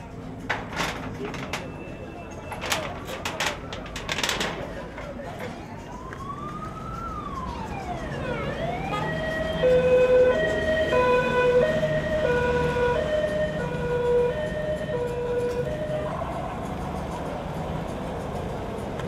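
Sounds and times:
street traffic noise: 0.0s - 19.0s
emergency siren wailing: 2.3s - 17.6s.

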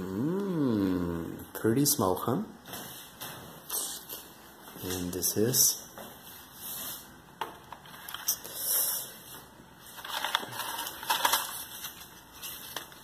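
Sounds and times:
packing material crinkling: 9.8s - 13.0s.

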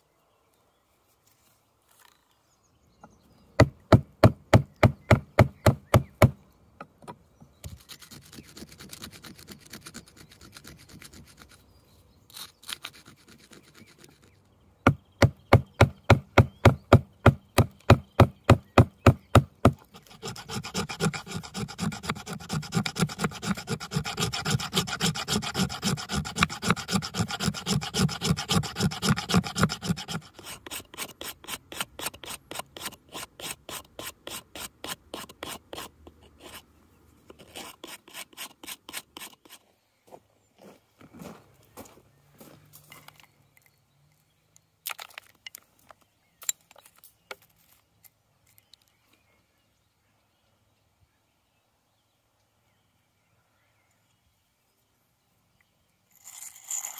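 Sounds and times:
stone sawing wood rasping: 7.7s - 11.6s, 12.3s - 14.3s, 19.6s - 36.6s, 37.3s - 39.6s.

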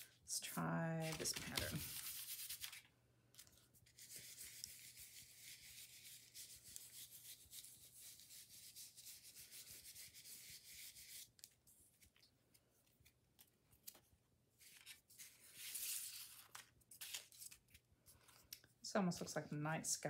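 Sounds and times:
sponge scrubbing on paper: 1.0s - 2.8s, 3.9s - 11.3s
paper rustling: 1.0s - 7.0s, 11.0s - 18.6s.

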